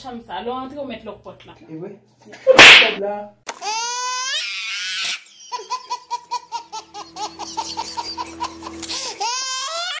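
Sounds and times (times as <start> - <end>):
baby squealing: 3.6 - 5.2, 9.0 - 10.0
baby laughing: 3.6 - 10.0.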